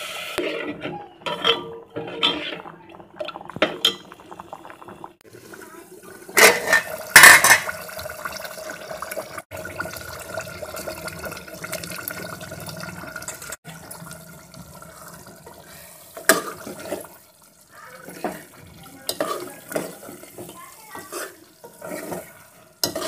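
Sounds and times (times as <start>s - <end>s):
curry bubbling: 0.4s - 23.0s
metal lid clattering: 1.2s - 2.6s, 6.4s - 7.8s.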